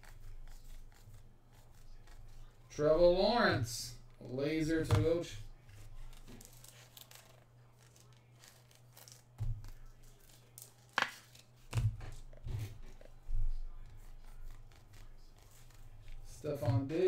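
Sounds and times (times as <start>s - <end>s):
hands handling trading cards: 4.9s - 17.0s.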